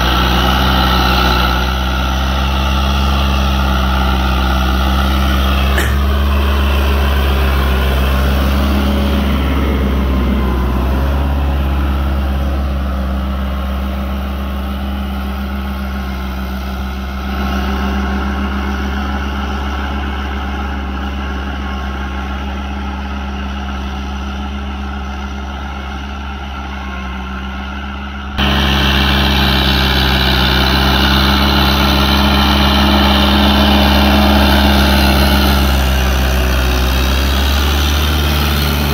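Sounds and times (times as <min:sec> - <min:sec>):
tractor diesel engine running: 0:00.0 - 0:38.9.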